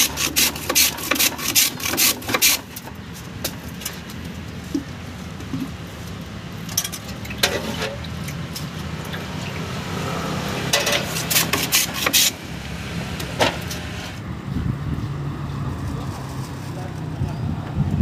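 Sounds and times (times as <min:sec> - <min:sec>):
metal ladle clinking on pots: 0:06.7 - 0:08.1.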